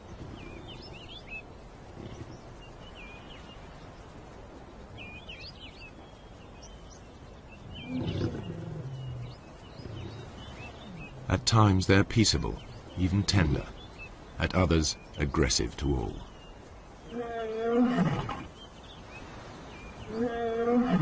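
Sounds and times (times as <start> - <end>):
birds chirping: 0.0 - 21.0
outdoor background noise: 0.0 - 21.0
lion calling: 7.8 - 11.5, 20.1 - 21.0.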